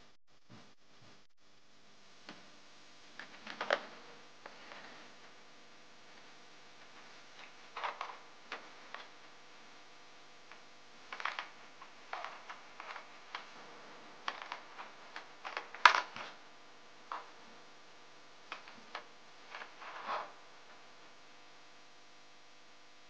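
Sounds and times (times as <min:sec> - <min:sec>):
plastic toy clicks and rustles: 0:11.1 - 0:13.5, 0:14.2 - 0:16.4.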